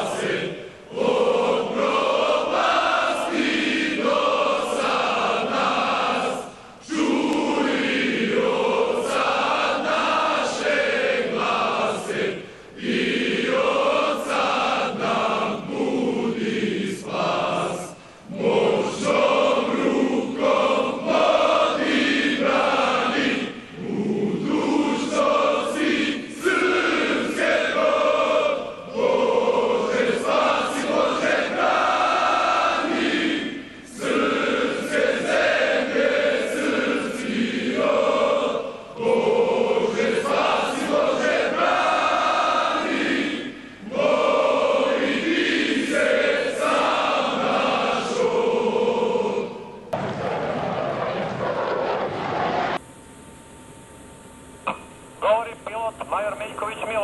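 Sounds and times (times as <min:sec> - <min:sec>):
choir singing unaccompanied: 0:00.0 - 0:50.0.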